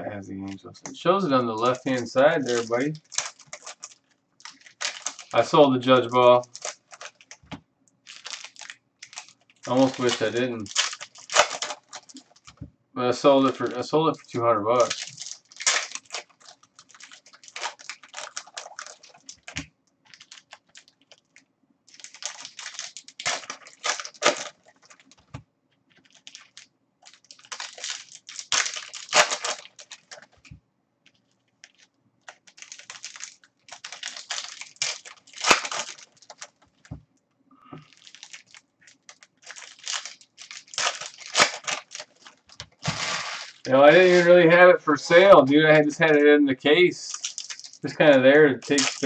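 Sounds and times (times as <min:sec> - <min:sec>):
plastic wrappers crinkling and tearing: 0:00.4 - 0:37.0, 0:37.7 - 0:49.0.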